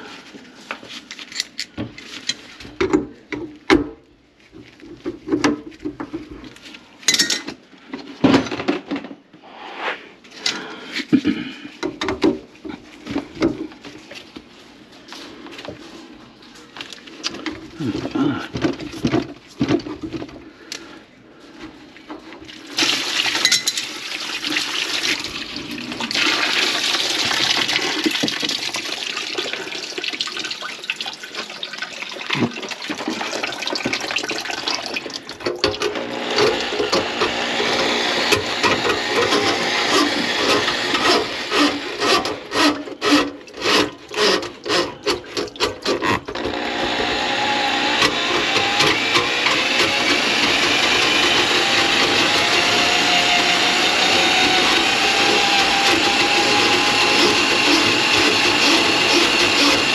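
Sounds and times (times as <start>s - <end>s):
drain auger cable scraping in pipe: 35.8s - 59.9s.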